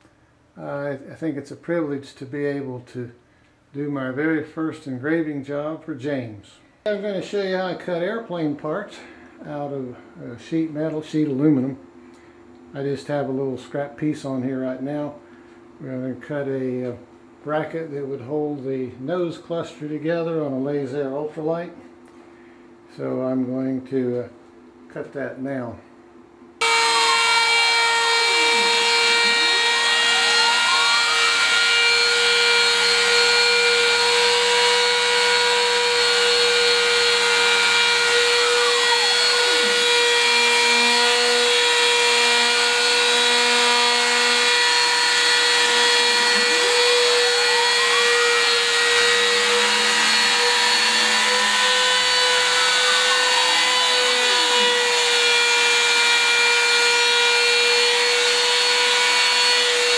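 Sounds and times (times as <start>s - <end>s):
end mill cutting aluminum: 26.6s - 59.9s
router motor whine: 26.6s - 59.9s.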